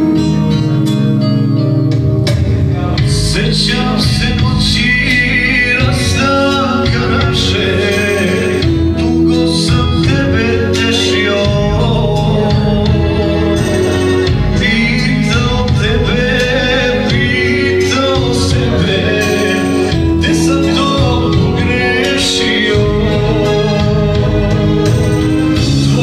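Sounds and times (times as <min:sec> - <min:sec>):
electronic keyboard: 0:00.0 - 0:26.0
man singing into microphone: 0:02.7 - 0:26.0.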